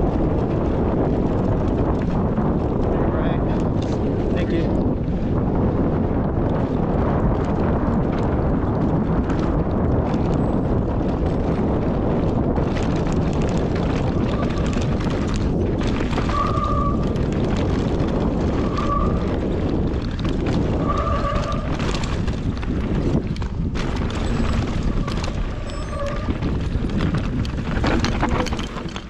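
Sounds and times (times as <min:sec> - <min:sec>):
rumble of riding on dirt trail: 0:00.0 - 0:29.0
wind buffeting microphone: 0:00.0 - 0:29.0
short squeals: 0:25.1 - 0:26.4.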